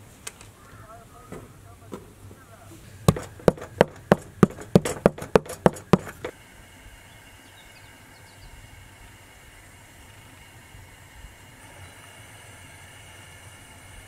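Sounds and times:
metal press knocking on tray: 3.1s - 6.3s.

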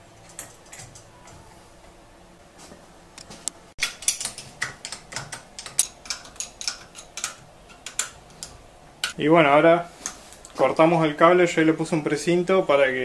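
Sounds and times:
small metallic clicks and taps: 3.2s - 9.2s.

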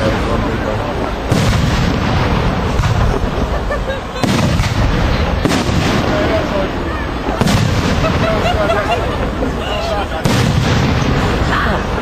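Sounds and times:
fireworks bangs: 0.0s - 12.0s.

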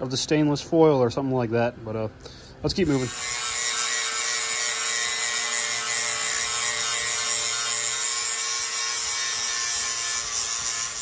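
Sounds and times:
angle grinder grinding steel: 2.8s - 11.0s.

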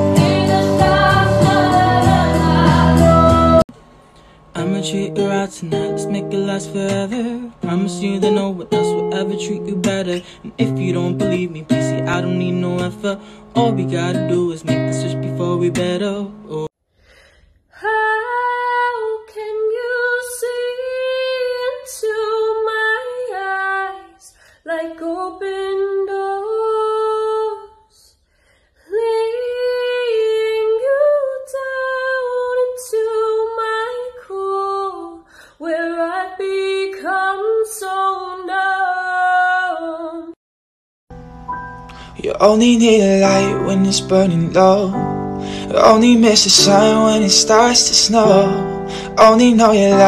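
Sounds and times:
woman singing: 0.0s - 3.6s, 17.7s - 28.1s, 28.8s - 40.4s, 45.7s - 50.0s.

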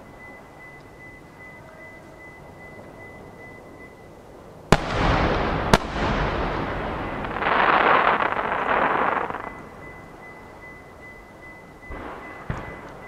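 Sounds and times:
firework crackling: 4.7s - 9.8s
firework booms with rumbling echo: 4.7s - 10.1s, 11.8s - 13.0s.

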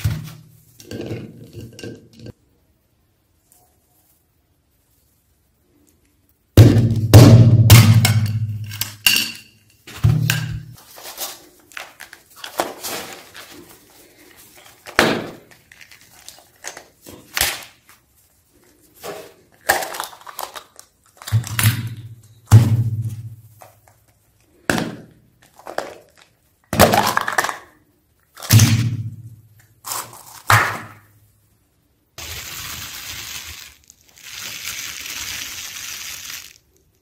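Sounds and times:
rustling of toy parts: 8.5s - 28.6s, 29.6s - 31.0s, 32.2s - 37.0s.

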